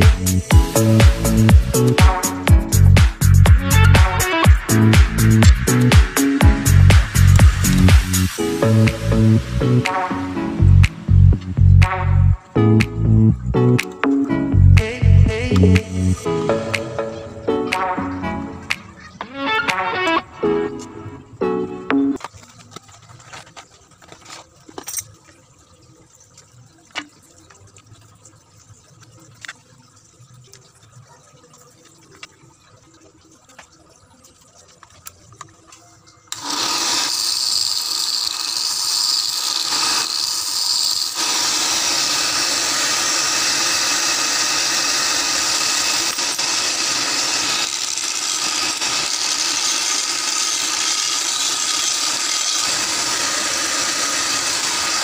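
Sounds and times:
belt sander whirring: 36.3 - 55.0.

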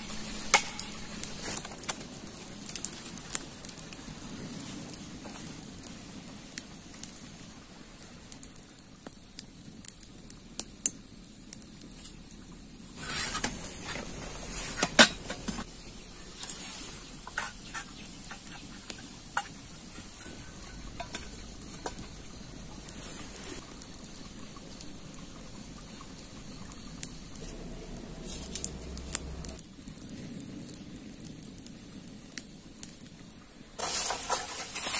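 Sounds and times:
firewood being handled: 0.0 - 7.3, 11.7 - 23.7, 27.3 - 29.6, 33.8 - 34.9
wood fire crackling: 0.0 - 34.9.

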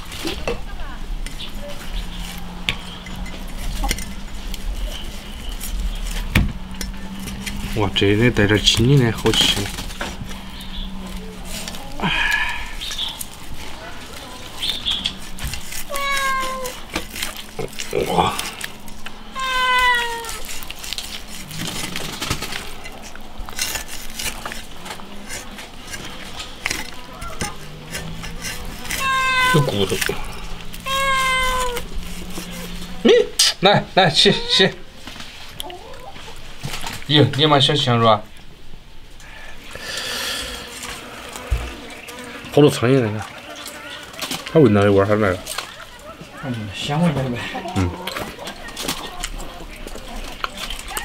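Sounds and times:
cleaver cutting and scraping meat: 1.1 - 34.8, 40.3 - 51.0
cat meowing: 15.9 - 16.8, 19.3 - 20.5, 28.9 - 30.0, 30.8 - 31.9, 34.2 - 34.8.

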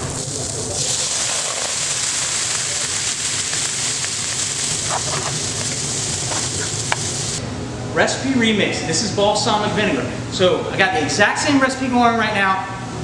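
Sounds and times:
food frying in a pan: 0.0 - 7.4
liquid hitting hot pan sizzling: 0.0 - 7.4.

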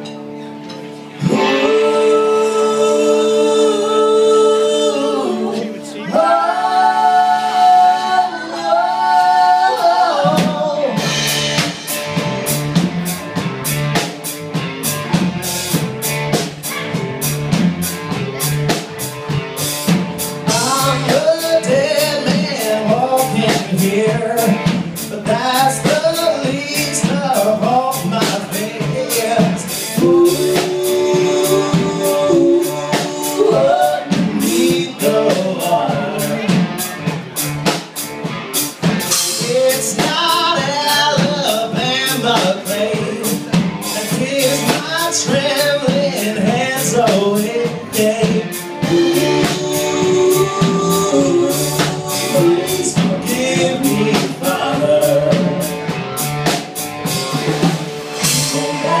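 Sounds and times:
drum kit and band playing: 0.0 - 59.0
man and woman singing in harmony: 1.2 - 11.6, 20.5 - 36.7, 39.2 - 55.9, 58.2 - 59.0.

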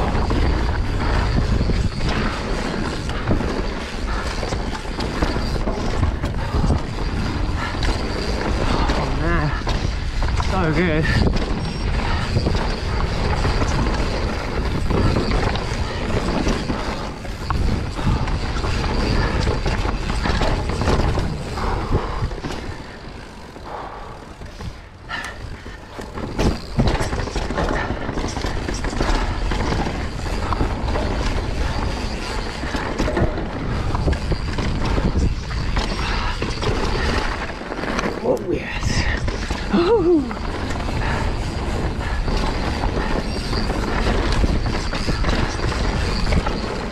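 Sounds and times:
bike rattling and knocking: 0.0 - 46.9
bike tyres rolling over dirt: 0.0 - 46.9.

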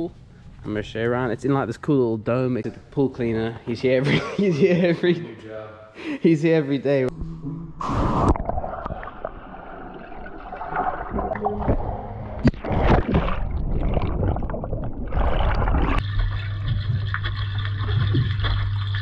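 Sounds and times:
low underwater hum: 7.1 - 19.0
underwater bubbling and splashing: 7.8 - 19.0.

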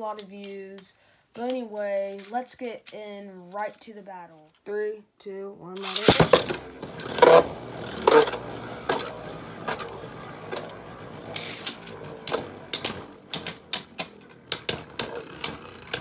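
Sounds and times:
spinning tops clacking together: 5.8 - 16.0
spinning tops whirring: 5.8 - 16.0.

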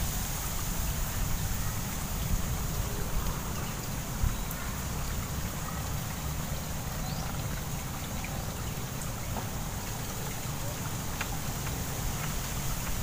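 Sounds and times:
steady high hiss: 0.0 - 4.2.

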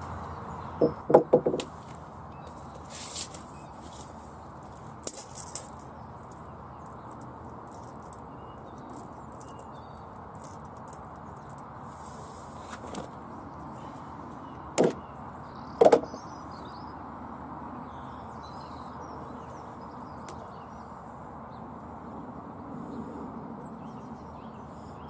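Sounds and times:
outdoor background rush: 0.0 - 25.0
sharp scraping knocks: 0.8 - 2.0, 14.8 - 15.0, 15.8 - 16.2.

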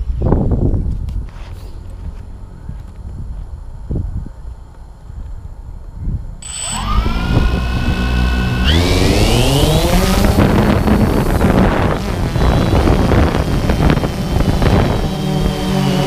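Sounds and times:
drone motors whining: 6.4 - 16.0.

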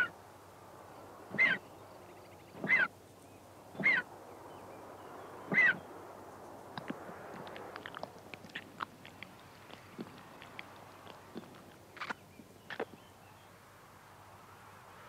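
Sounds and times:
vulture chick calling: 1.3 - 1.6, 2.6 - 2.9, 3.8 - 4.1, 5.5 - 5.9.

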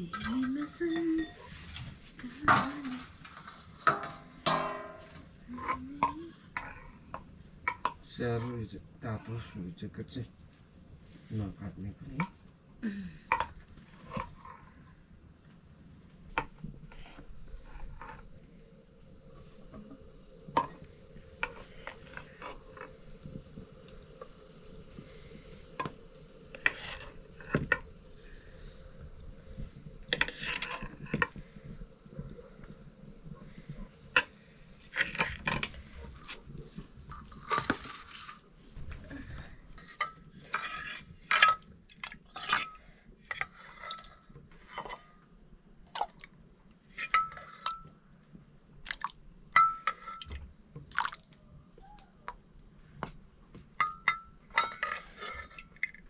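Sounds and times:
steel dishes clinking and scraping: 0.1 - 7.0, 30.1 - 31.4, 39.8 - 41.7, 46.9 - 47.9, 49.6 - 50.3, 53.8 - 56.0
ladle striking steel plates: 3.9 - 5.2.

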